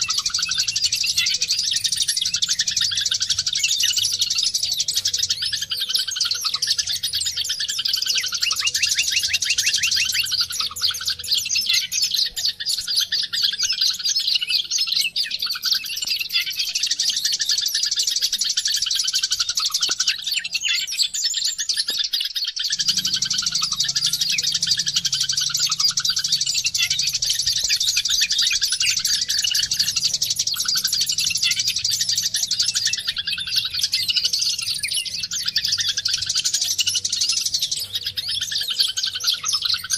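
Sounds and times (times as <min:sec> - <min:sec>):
bird twittering song: 0:00.0 - 0:39.9
faint low hum: 0:22.7 - 0:36.7.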